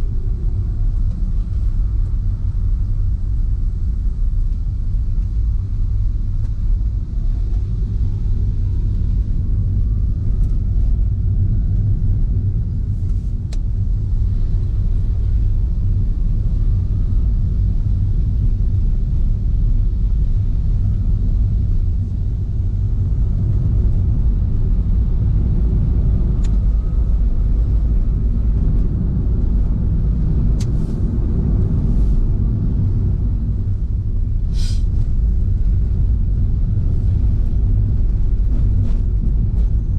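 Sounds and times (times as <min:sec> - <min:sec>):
car road and engine rumble: 0:00.0 - 0:39.9
faint rising whines: 0:00.0 - 0:39.9.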